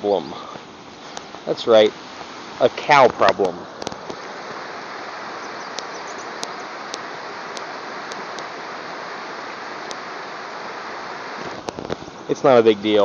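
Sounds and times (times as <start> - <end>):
stream rushing over rocks: 0.1 - 13.0
faint sharp ticks: 5.7 - 8.5, 9.8 - 10.0.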